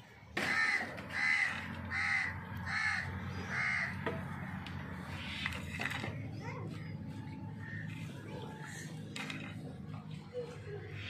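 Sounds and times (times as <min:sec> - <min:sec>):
crow cawing: 0:00.4 - 0:04.0
steady low hum: 0:00.9 - 0:11.0.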